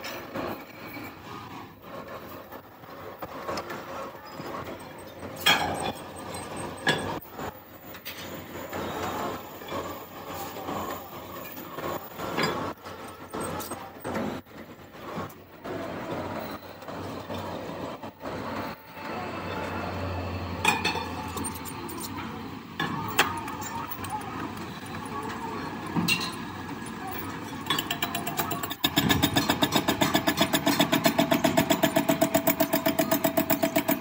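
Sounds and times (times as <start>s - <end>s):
metal scraping and rattling: 20.5s - 34.0s.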